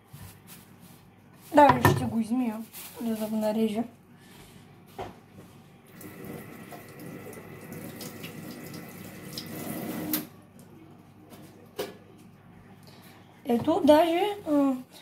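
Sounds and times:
kitchen tap running: 0:05.9 - 0:10.3.

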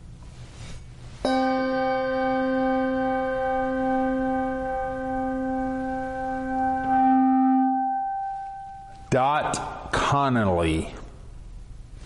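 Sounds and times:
bell ringing: 0:01.3 - 0:08.9.

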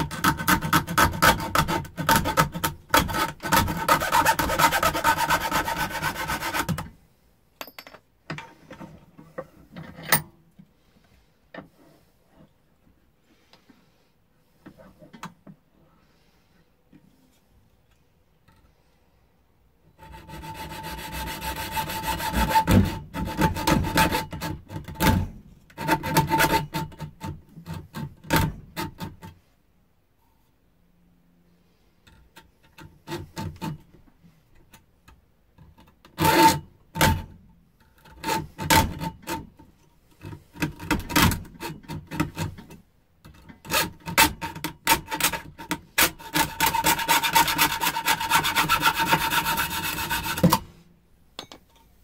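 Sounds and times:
hacksaw cutting metal tube: 0:00.0 - 0:06.9, 0:20.0 - 0:29.3, 0:32.4 - 0:33.9, 0:36.1 - 0:37.3, 0:38.0 - 0:50.7.

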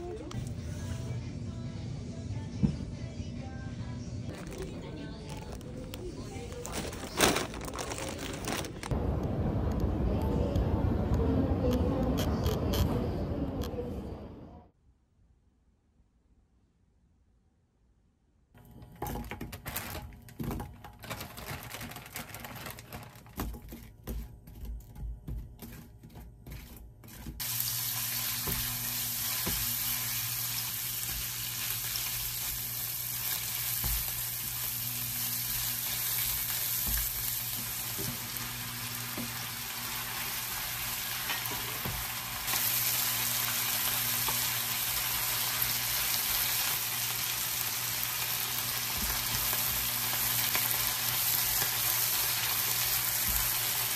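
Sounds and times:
spatula tapping and scraping: 0:23.2 - 0:27.4
meat sizzling in a frying pan: 0:27.4 - 0:53.9.

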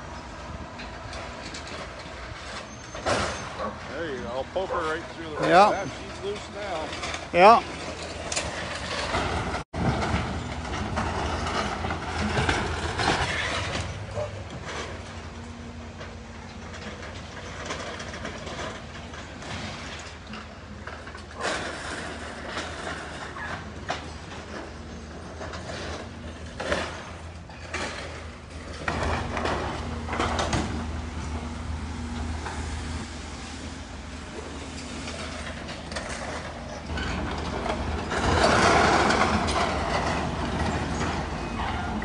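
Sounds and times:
diesel engine running: 0:00.0 - 0:42.0
timbers and metal crashing: 0:00.5 - 0:42.0
debris crashing down: 0:35.0 - 0:42.0.

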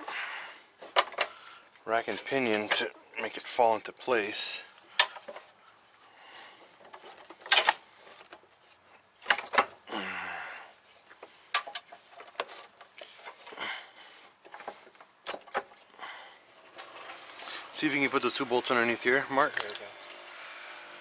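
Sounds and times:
metallic clicks and knocks: 0:11.5 - 0:12.7
ringing metal clink: 0:19.5 - 0:20.5.

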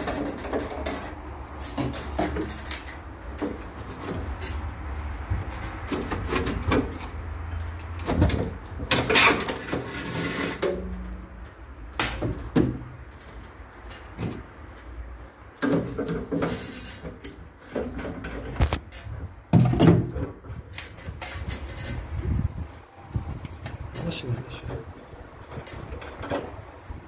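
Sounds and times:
metal tools clattering and scraping: 0:00.0 - 0:11.2.

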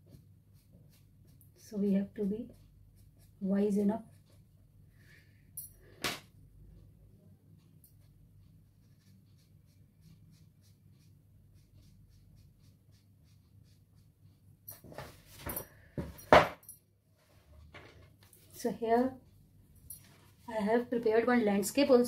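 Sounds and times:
pastel scratching on paper: 0:00.0 - 0:04.5, 0:07.6 - 0:14.4.

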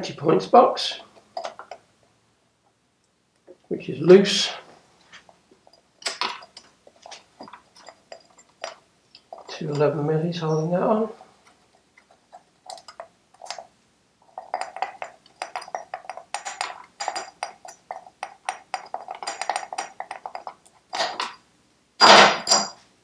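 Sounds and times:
metallic clank: 0:22.0 - 0:22.8.

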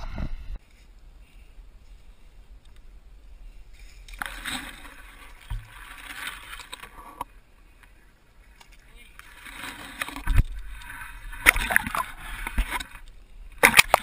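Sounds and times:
water sloshing and splashing: 0:03.7 - 0:07.3, 0:08.4 - 0:14.0.

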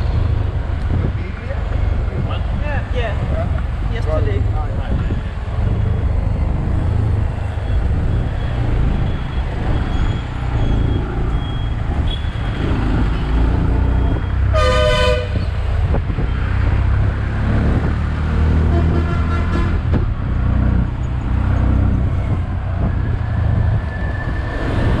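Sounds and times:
road and traffic noise: 0:00.0 - 0:25.0
vehicle horn toot: 0:14.5 - 0:15.5, 0:18.7 - 0:19.8.

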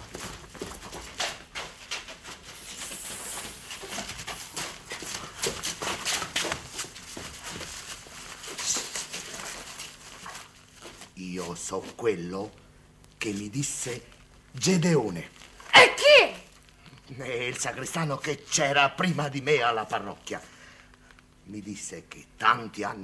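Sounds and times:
hurried footsteps through undergrowth: 0:00.0 - 0:12.2
plants rustling: 0:00.0 - 0:12.6.

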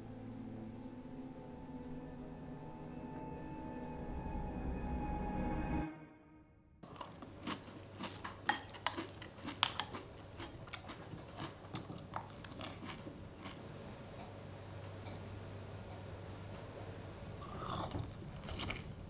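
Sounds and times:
film music: 0:00.0 - 0:08.4
crunchy chewing: 0:06.8 - 0:13.6, 0:17.4 - 0:19.0.

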